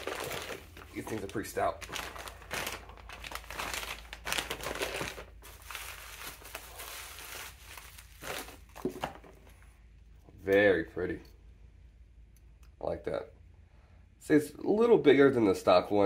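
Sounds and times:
plastic and bubble wrap crinkling: 0:00.0 - 0:09.6.

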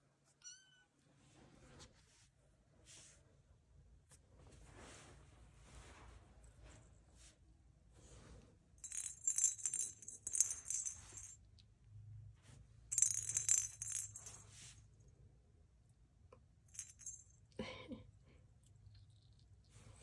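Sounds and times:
cat ball bell jingling: 0:08.8 - 0:11.4, 0:12.9 - 0:14.6, 0:16.7 - 0:17.4.

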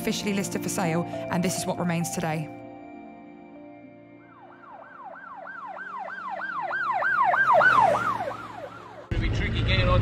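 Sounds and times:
siren-like whooping tone: 0:04.4 - 0:09.1.

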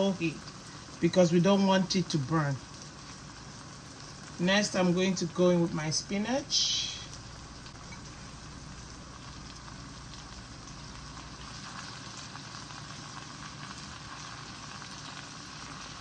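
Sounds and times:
food sizzling in a pan: 0:00.0 - 0:16.0.

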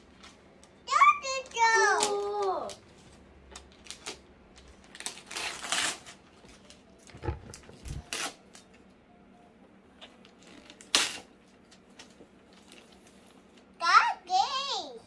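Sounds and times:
wrapping paper rustling: 0:01.9 - 0:08.4.

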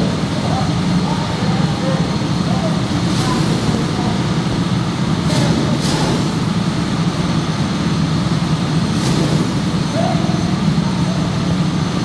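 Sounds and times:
go-kart engines idling: 0:00.0 - 0:12.0.

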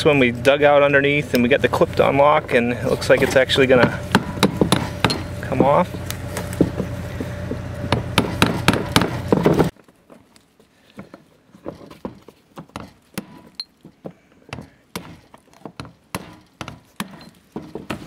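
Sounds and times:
steady low hum: 0:00.0 - 0:09.8.

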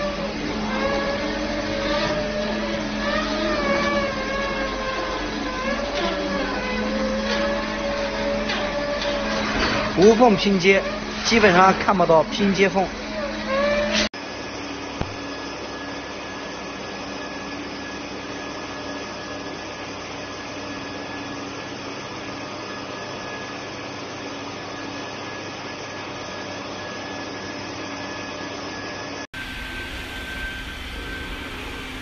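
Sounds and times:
machine hum and whine: 0:00.0 - 0:32.0
welding machine blower hissing: 0:29.4 - 0:32.0.

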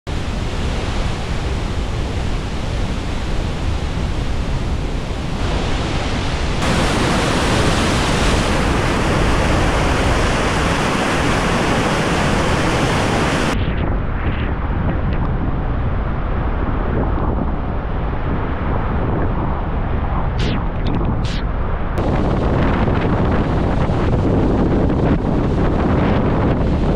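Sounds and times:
water rushing down a spillway: 0:05.4 - 0:13.6.

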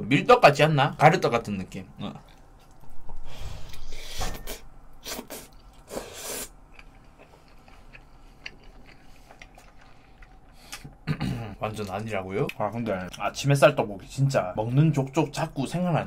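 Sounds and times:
person chewing: 0:05.0 - 0:13.2.

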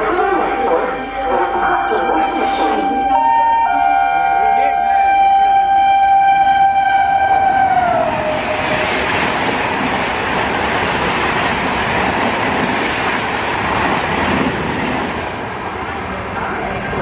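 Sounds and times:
train horn: 0:00.0 - 0:09.0
train coaches rushing past: 0:06.5 - 0:17.0.

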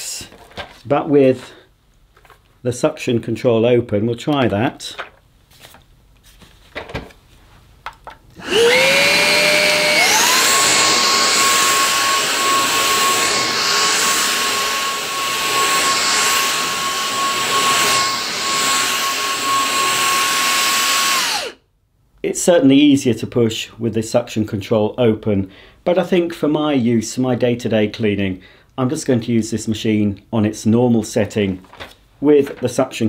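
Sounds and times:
stick vacuum whine: 0:08.4 - 0:21.6.

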